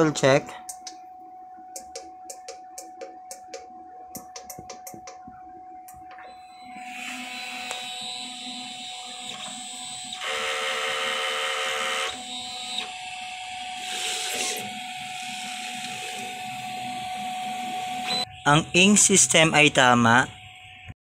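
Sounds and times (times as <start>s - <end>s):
printer motor whine: 5.3s - 21.0s.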